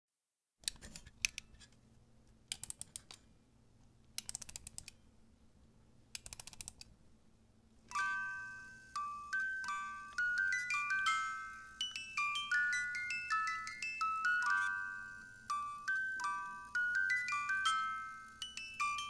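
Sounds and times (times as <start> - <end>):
high bell-like melody: 7.9 - 19.0.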